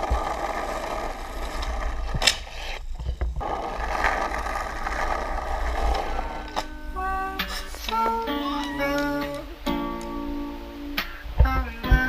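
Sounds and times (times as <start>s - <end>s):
skateboard wheels rolling on asphalt: 0.0s - 9.4s.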